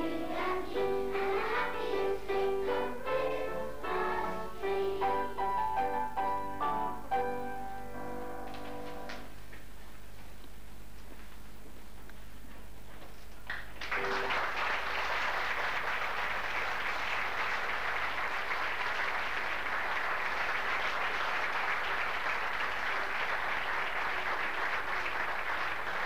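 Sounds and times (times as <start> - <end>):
audience applauding: 13.5 - 26.0.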